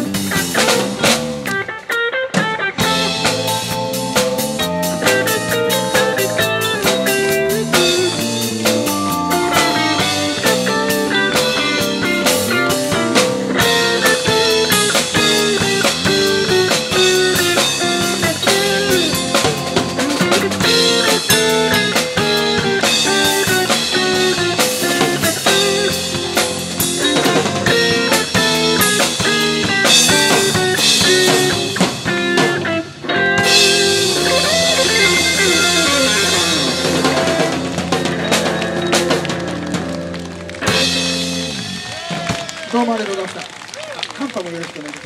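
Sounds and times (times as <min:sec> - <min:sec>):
jazz-funk band playing: 0:00.0 - 0:45.0.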